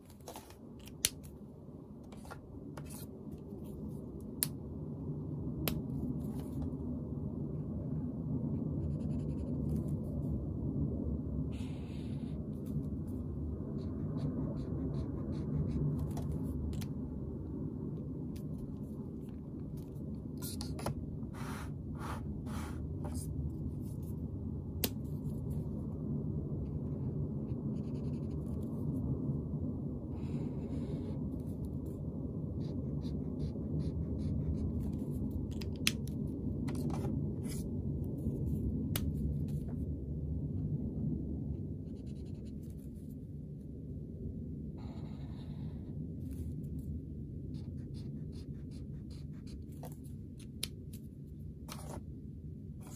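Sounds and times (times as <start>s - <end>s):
steady low rumble: 0.0s - 52.9s
highlighter scratching on paper: 2.2s - 3.1s, 8.8s - 9.9s, 13.7s - 16.8s, 19.8s - 24.1s, 27.5s - 28.7s, 32.6s - 35.2s, 36.7s - 37.7s, 41.8s - 43.0s, 44.8s - 46.4s, 47.5s - 50.6s, 51.7s - 52.0s.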